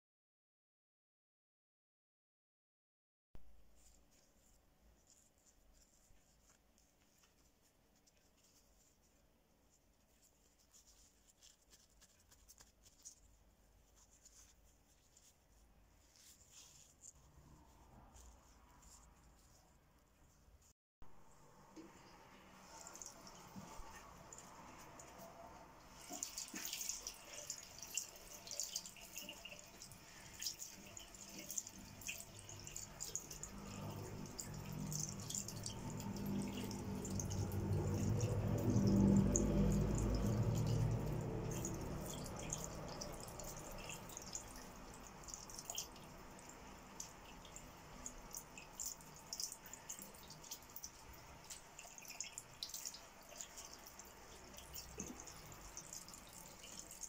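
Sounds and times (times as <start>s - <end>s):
tap water running into a sink: 21.8s - 57.0s
low rumble: 33.4s - 44.1s.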